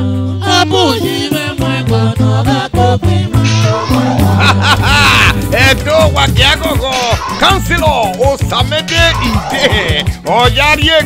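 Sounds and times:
bass line: 0.0s - 10.8s
drums: 3.4s - 11.0s.

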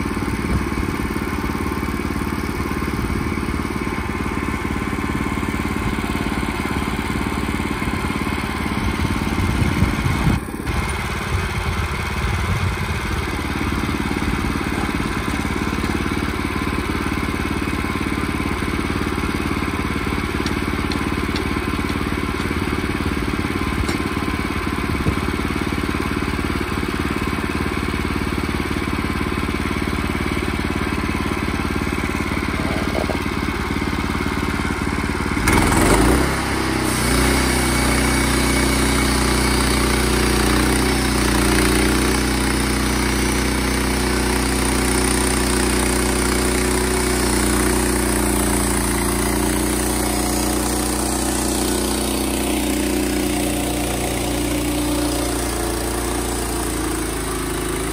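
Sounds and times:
small engine running steadily: 0.0s - 57.9s.

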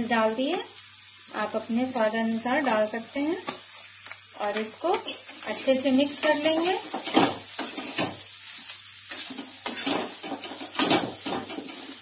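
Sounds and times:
sizzling in oil: 0.0s - 12.0s
metal spatula scraping a pan: 5.5s - 12.0s.

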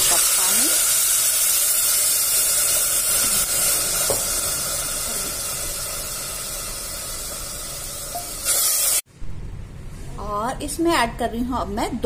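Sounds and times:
water pouring into hot oil: 0.0s - 9.1s
oil sizzling and bubbling: 0.0s - 9.9s.

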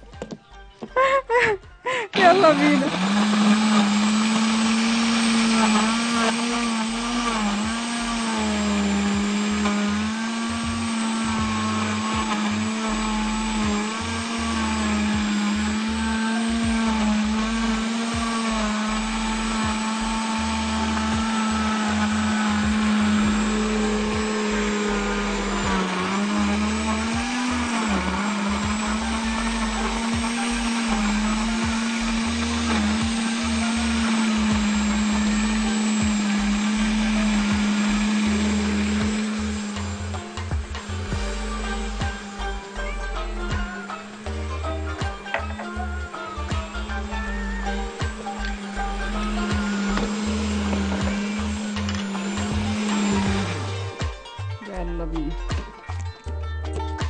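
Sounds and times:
blender motor running: 1.9s - 55.6s.

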